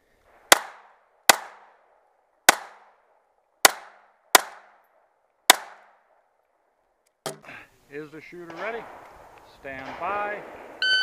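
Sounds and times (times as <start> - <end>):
pistol shots: 0.3 - 1.8, 2.5 - 3.0, 3.6 - 4.8, 5.5 - 6.0, 8.5 - 11.0.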